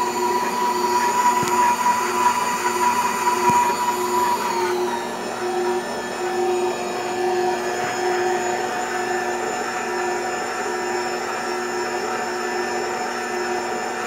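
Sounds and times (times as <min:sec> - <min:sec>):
stand mixer motor running: 0:00.0 - 0:14.0.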